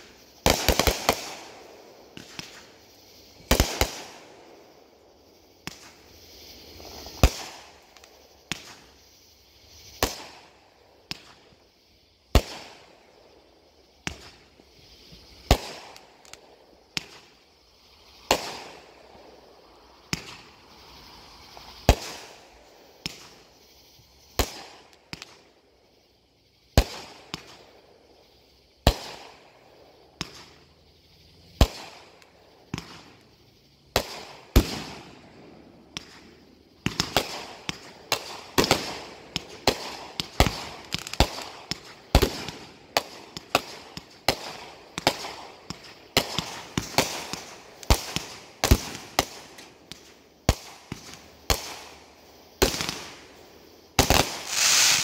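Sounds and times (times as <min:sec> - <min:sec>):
fireworks banging: 0:00.0 - 0:11.6, 0:13.9 - 0:17.4, 0:19.6 - 0:23.6, 0:30.2 - 0:30.7, 0:31.5 - 0:33.2, 0:33.9 - 0:55.0
firework hiss: 0:00.0 - 0:55.0.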